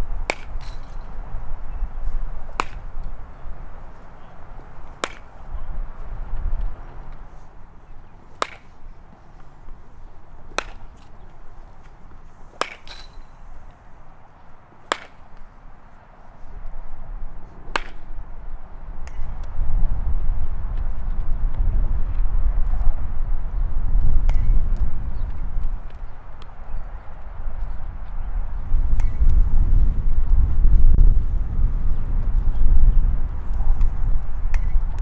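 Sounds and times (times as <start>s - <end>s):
baseball bat cracking balls: 0.2s - 1.2s, 2.0s - 5.6s, 6.3s - 16.0s, 17.4s - 18.2s, 24.2s - 26.6s, 33.5s - 35.0s.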